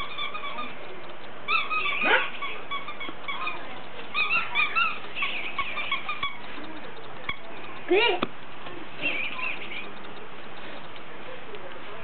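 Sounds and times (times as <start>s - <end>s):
squeaky dog toy squeaking: 0.0s - 6.5s, 7.2s - 8.2s.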